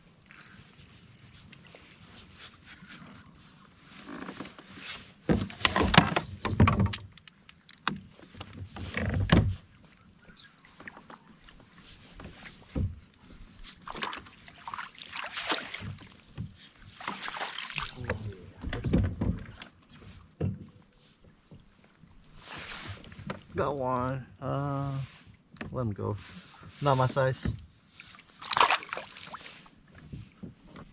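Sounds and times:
bumps and rustling in kayak: 1.4s - 23.6s, 25.1s - 30.9s
water splashing: 13.8s - 16.1s, 17.0s - 18.6s, 28.0s - 29.7s.

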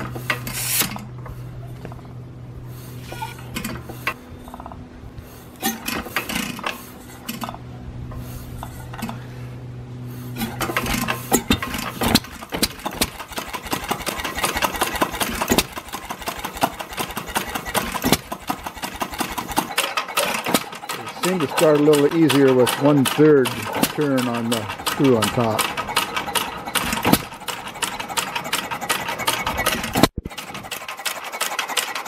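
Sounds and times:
steady hum: 0.0s - 19.4s
gasoline engine clattering: 0.0s - 32.0s
flywheel turning clicks: 10.4s - 32.0s.

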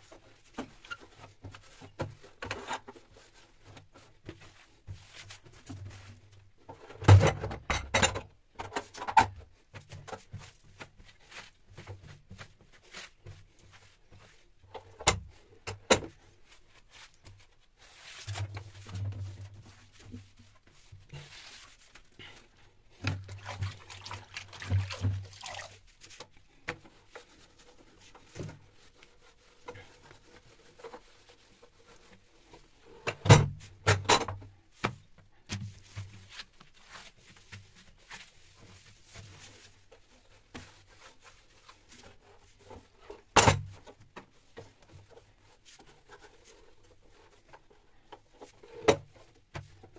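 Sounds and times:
cloth wiping a stove: 0.0s - 6.9s, 9.6s - 33.8s, 34.7s - 49.9s
knocks and clatters of objects: 0.1s - 16.3s, 29.6s - 36.6s, 42.7s - 49.9s.

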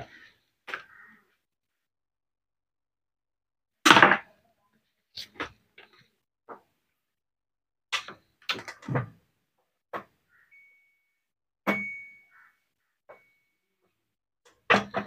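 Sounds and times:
metallic clang ringing: 11.7s - 12.3s.

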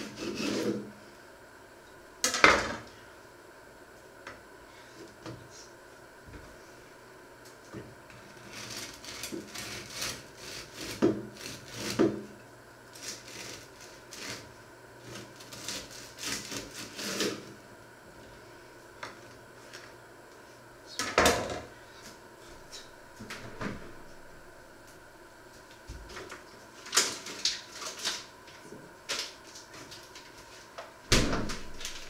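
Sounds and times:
knife sawing through bread: 0.0s - 0.8s, 8.4s - 12.1s, 13.0s - 17.5s.

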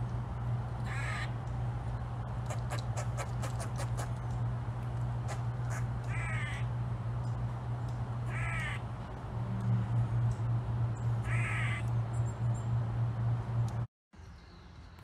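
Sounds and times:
steady low hum: 0.0s - 13.9s
animal harsh calls: 0.9s - 1.4s, 5.3s - 6.7s, 11.2s - 11.9s.

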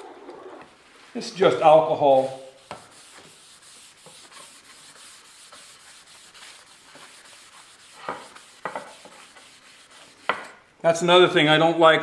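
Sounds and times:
rag rubbing on wood: 2.0s - 10.5s.

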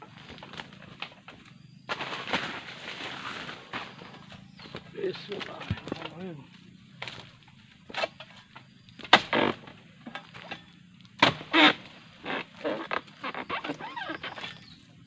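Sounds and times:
blade chopping into palm: 9.0s - 9.6s, 11.2s - 11.8s.

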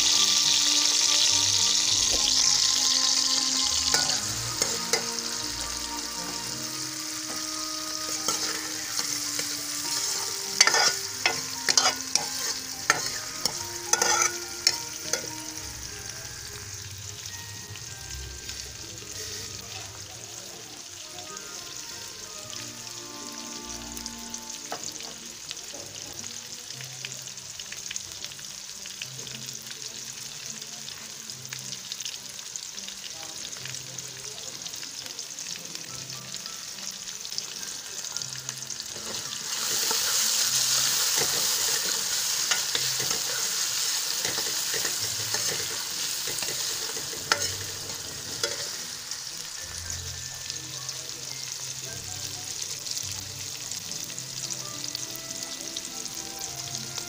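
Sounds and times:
onions sizzling in hot oil: 0.0s - 57.0s
metal spoon clicking on pan: 9.9s - 15.3s, 44.2s - 48.8s.

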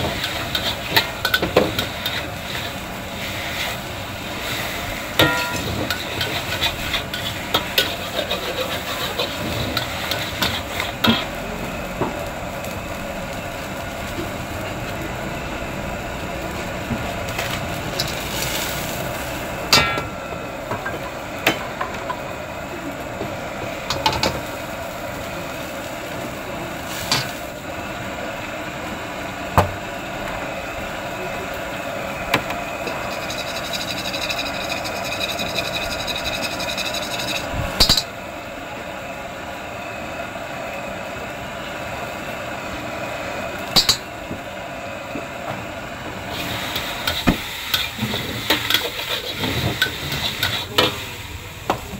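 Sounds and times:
wok cooking over gas burner: 0.0s - 51.9s
spatula clanking against wok: 5.2s - 6.5s.

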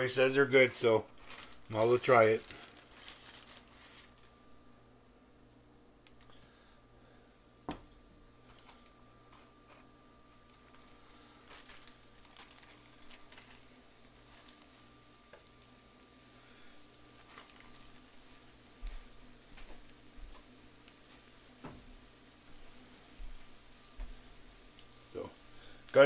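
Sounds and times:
steady low hum: 0.0s - 26.0s
butter crackling in pan: 10.4s - 26.0s.

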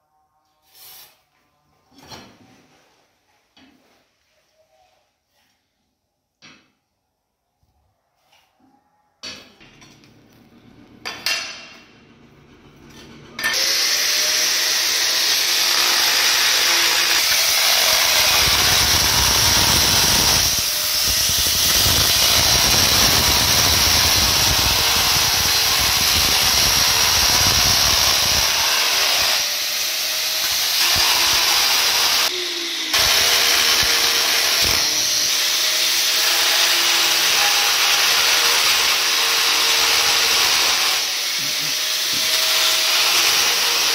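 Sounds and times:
angle grinder whining: 10.0s - 43.9s.

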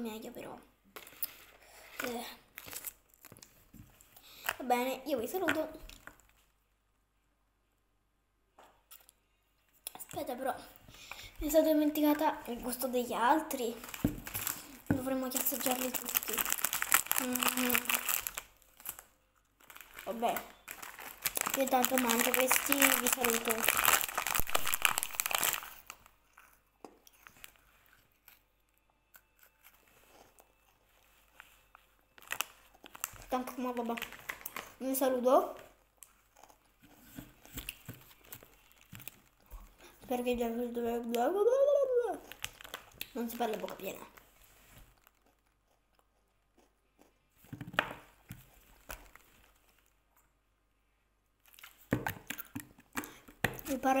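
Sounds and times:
snack wrapper crinkling: 1.0s - 4.6s, 13.5s - 28.5s, 31.4s - 34.8s, 37.4s - 39.8s, 42.2s - 47.2s, 48.3s - 50.0s, 51.4s - 53.8s
plastic bottle handling: 13.8s - 17.0s
snack crunching: 36.0s - 39.8s, 44.9s - 47.5s, 51.4s - 53.3s.

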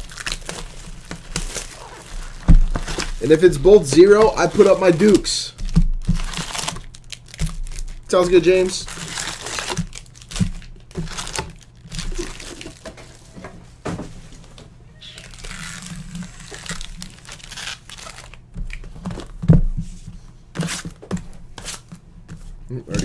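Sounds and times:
foil packs crinkling: 0.0s - 13.3s, 15.0s - 19.4s.

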